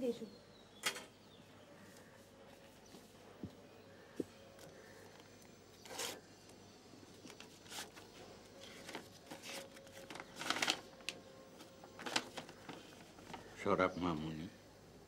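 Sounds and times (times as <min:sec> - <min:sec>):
paper rustling: 0:04.7 - 0:06.2, 0:07.2 - 0:13.6.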